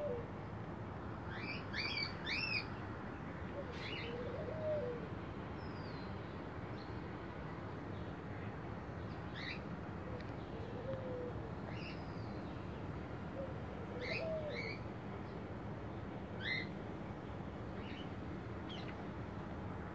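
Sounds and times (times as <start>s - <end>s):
low background noise: 0.0s - 19.9s
lower gliding bird call: 3.6s - 6.0s, 13.4s - 14.8s.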